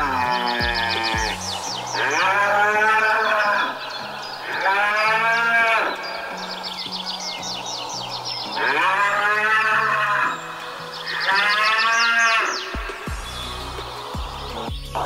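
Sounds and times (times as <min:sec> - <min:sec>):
cattle mooing: 0:00.0 - 0:07.2, 0:08.2 - 0:13.0
high chirps: 0:00.0 - 0:15.0.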